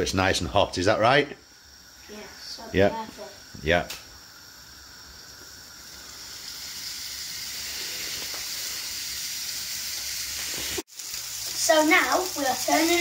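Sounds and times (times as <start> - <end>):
steaks sizzling in skillet: 0.8 - 13.0.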